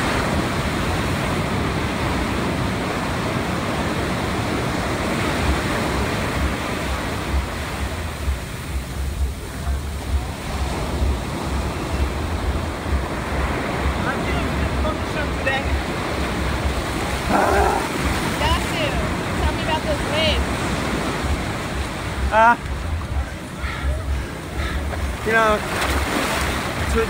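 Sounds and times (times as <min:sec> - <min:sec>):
ocean surf breaking: 0:00.0 - 0:27.0
wind buffeting microphone: 0:00.0 - 0:27.0.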